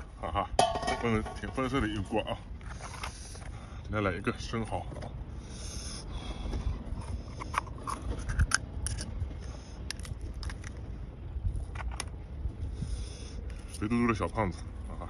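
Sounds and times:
steady low rumble: 0.0s - 15.0s
knife scraping oyster shell: 7.3s - 9.1s.

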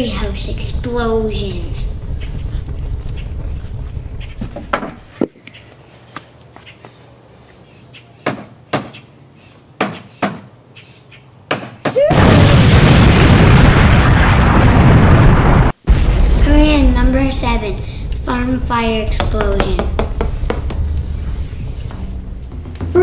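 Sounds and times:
explosion sound effect: 0.2s - 5.1s, 12.1s - 23.0s
hammer knocking on wooden post: 19.2s - 20.7s.

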